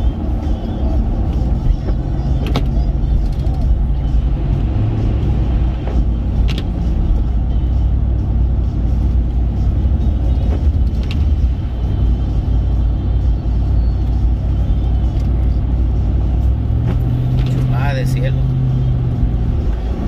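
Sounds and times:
road and engine rumble: 0:00.0 - 0:20.0.

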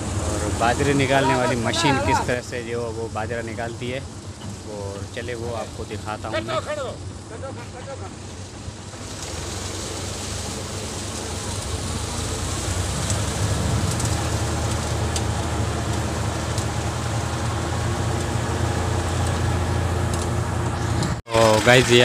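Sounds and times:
thresher rushing noise: 0:00.0 - 0:03.2, 0:08.0 - 0:22.0
diesel tractor engine humming: 0:00.0 - 0:22.0.

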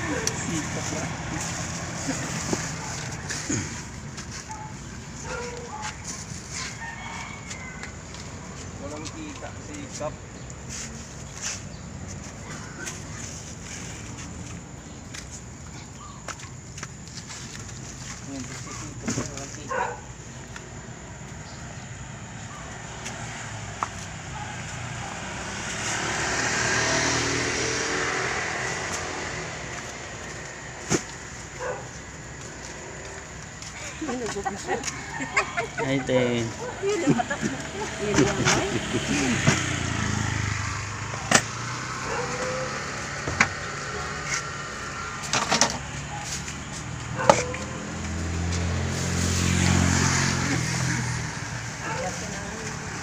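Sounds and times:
motor scooter passing by: 0:00.0 - 0:04.0, 0:22.8 - 0:30.8, 0:31.6 - 0:53.0
vehicle engine running: 0:28.4 - 0:53.0.

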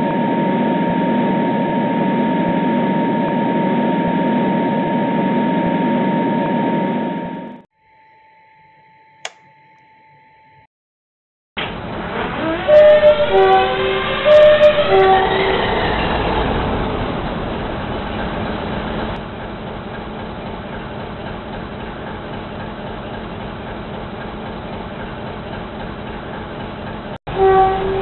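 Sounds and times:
diesel locomotive engine running: 0:11.6 - 0:28.0.

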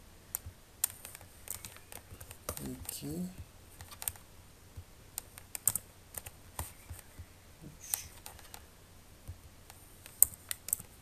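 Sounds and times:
mouse clicks: 0:00.3 - 0:02.9, 0:03.8 - 0:04.2, 0:04.8 - 0:08.6, 0:09.2 - 0:11.0
computer keyboard keystrokes: 0:00.4 - 0:03.0, 0:03.8 - 0:04.2, 0:05.2 - 0:07.3, 0:10.0 - 0:11.0.

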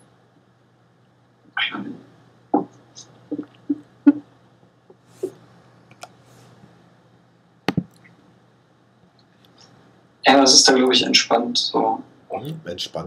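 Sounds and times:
low steady hum: 0:00.0 - 0:13.0
hand and pen tapping on paper: 0:07.7 - 0:08.0.

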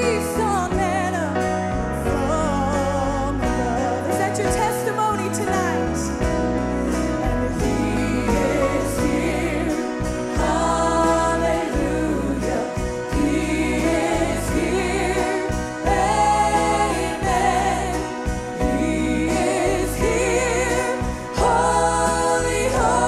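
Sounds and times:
live band playing: 0:00.0 - 0:23.0
backing singers: 0:06.5 - 0:23.0
woman singing with vibrato: 0:07.0 - 0:23.0.

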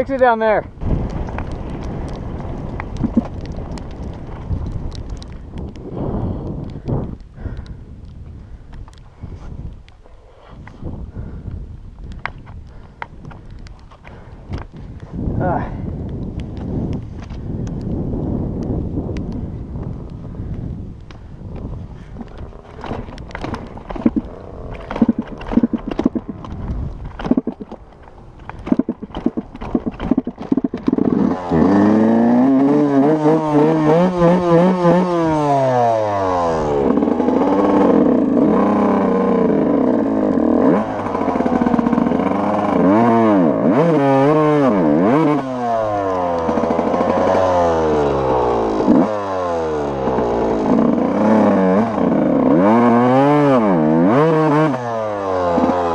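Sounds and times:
dirt bike engine revving: 0:22.5 - 0:27.6, 0:28.5 - 0:55.9.

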